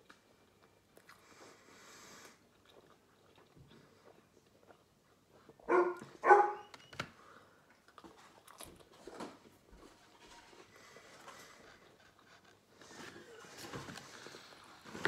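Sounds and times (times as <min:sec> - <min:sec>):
dog barking: 0:05.7 - 0:06.7
faint clicks and rustles: 0:07.9 - 0:15.0.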